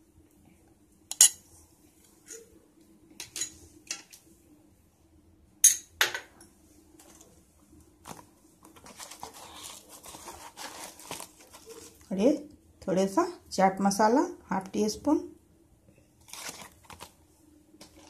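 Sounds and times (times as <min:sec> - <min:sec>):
packet crinkling: 0:08.0 - 0:12.1, 0:16.2 - 0:17.2, 0:17.8 - 0:18.0.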